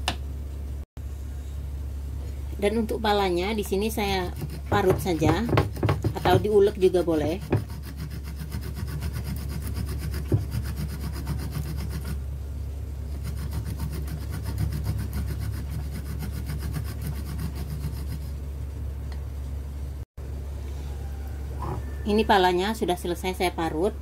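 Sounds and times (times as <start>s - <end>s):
nutmeg rasping on grater: 3.8s - 12.2s, 13.2s - 18.4s.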